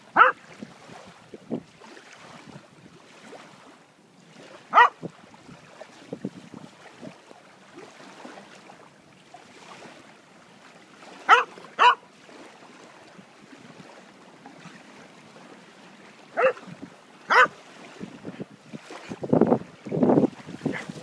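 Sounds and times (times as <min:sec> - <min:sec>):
dog barking: 0:00.2 - 0:00.4, 0:04.7 - 0:05.0, 0:11.3 - 0:12.0, 0:16.4 - 0:16.6, 0:17.3 - 0:17.6.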